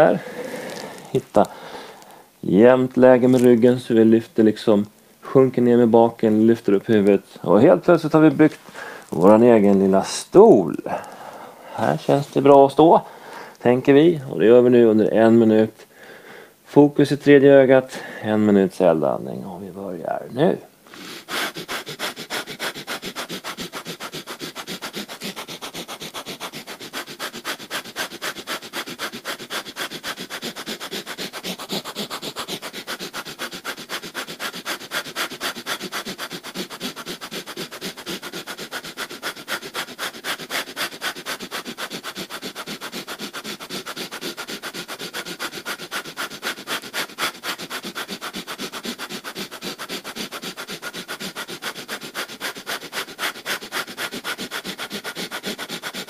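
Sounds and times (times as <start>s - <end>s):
fast forceful breathing through nose: 0.0s - 2.4s, 7.8s - 10.0s, 10.9s - 13.6s, 20.9s - 56.0s.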